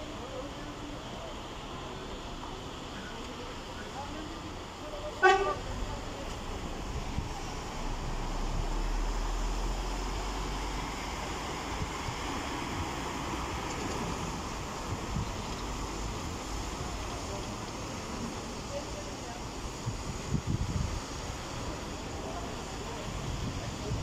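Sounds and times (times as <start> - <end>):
road traffic: 0.0 - 24.0
wind on microphone: 19.7 - 21.6.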